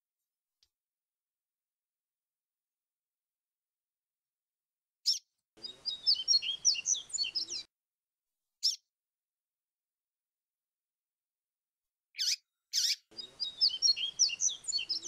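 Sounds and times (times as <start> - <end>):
bird twittering song: 5.0 - 7.7, 8.6 - 8.8, 12.2 - 15.0.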